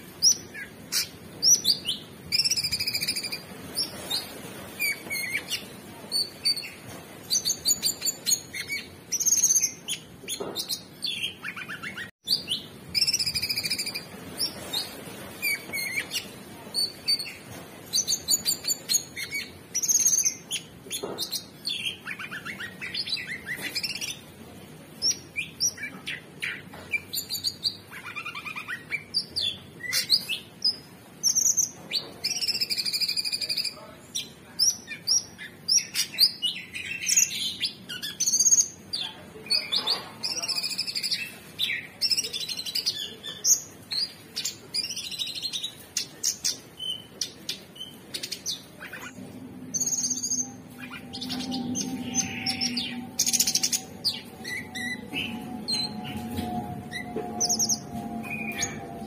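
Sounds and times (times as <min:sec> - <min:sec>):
bird singing: 0:34.7 - 0:59.0.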